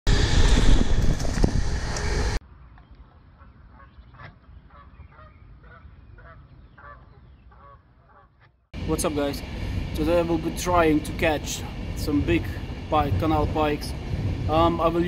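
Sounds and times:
loud rushing noise: 0.1 - 2.4, 8.8 - 15.0
geese honking: 3.4 - 8.5.

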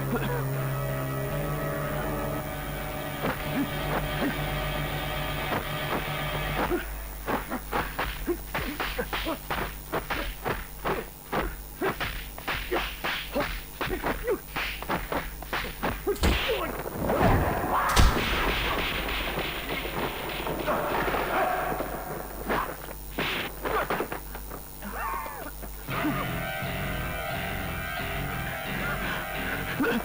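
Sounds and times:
punch and block hits: 11.8 - 20.1.

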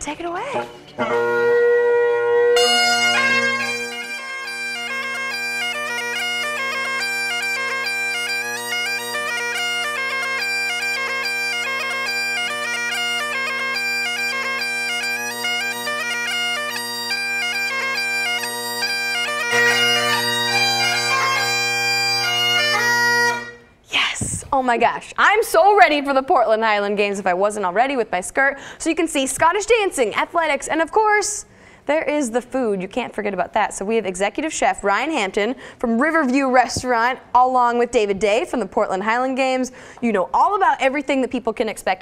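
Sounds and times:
bagpipe drones humming: 0.2 - 23.8
bagpipe chanter melody: 0.3 - 23.8.

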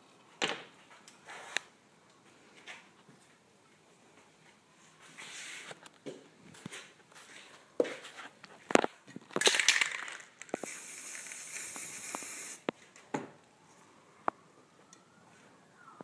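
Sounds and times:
spray cans clinking: 9.3 - 12.6
spray can rattle: 9.3 - 12.7
spray paint hissing: 9.8 - 12.7.

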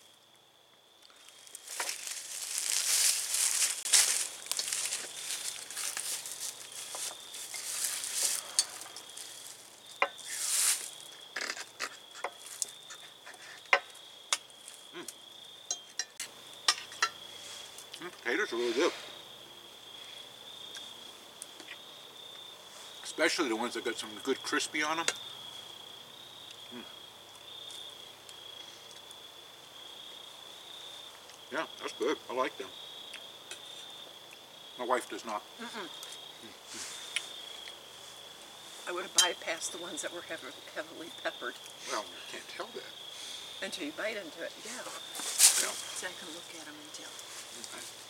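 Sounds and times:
insects trilling: 0.0 - 48.0
person murmuring: 26.7 - 26.9.

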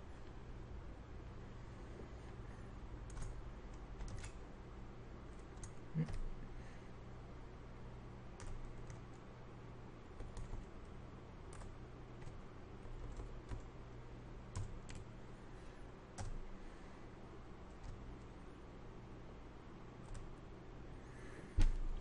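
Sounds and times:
steady low hum: 0.0 - 22.0
keyboard keystrokes: 3.1 - 4.4, 8.4 - 9.2, 11.5 - 13.7, 16.2 - 16.4.

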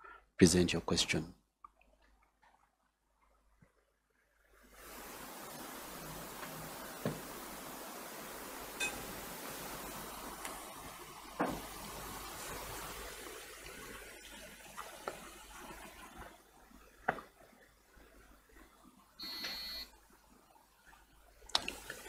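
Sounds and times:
faint hiss: 4.4 - 18.5.

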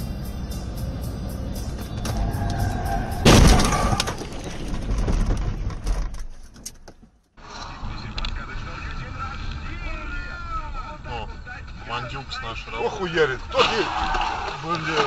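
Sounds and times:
car crash: 1.7 - 6.6
crunching metal: 3.1 - 7.0.

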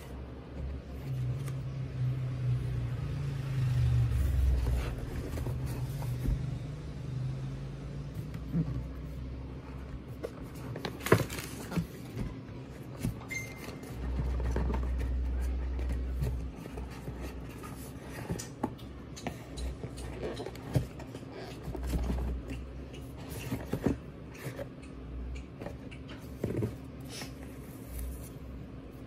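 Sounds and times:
cardboard box being handled: 4.1 - 7.0, 8.1 - 24.7.

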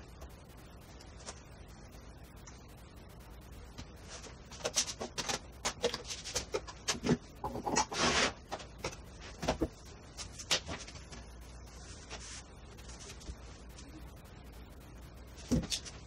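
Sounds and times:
scraping rustle: 4.0 - 8.5.

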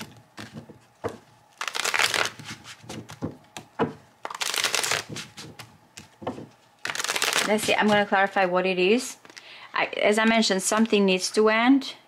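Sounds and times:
cards shuffling: 0.0 - 8.3.

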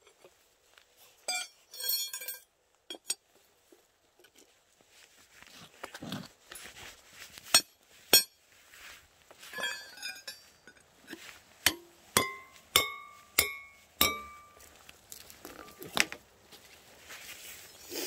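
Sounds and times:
light metallic rattle: 9.5 - 14.7
metal stake struck ringing: 11.7 - 14.7.

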